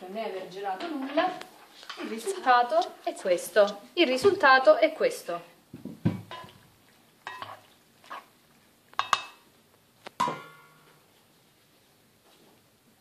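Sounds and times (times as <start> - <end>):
ladle knocking against pot: 5.8 - 6.6, 9.0 - 9.4.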